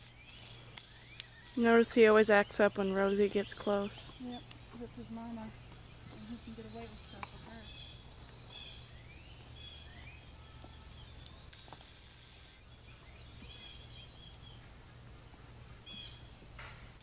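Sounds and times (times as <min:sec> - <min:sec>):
faint bird chirps: 0:00.0 - 0:14.7
steady low hum: 0:00.0 - 0:17.0
high hiss: 0:11.3 - 0:17.0.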